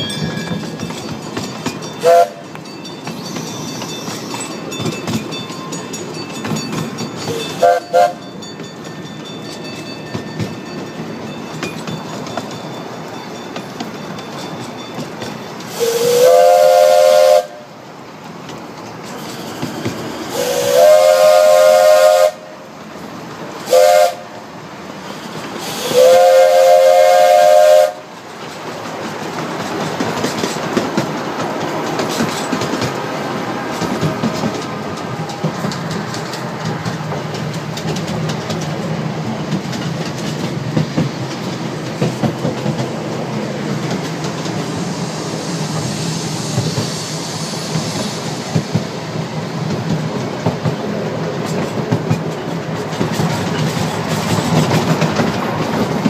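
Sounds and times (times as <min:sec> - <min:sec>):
steam locomotive chime whistle: 0:00.0 - 0:17.8, 0:19.2 - 0:22.8, 0:23.6 - 0:28.2
moving train running noise: 0:00.0 - 0:56.0.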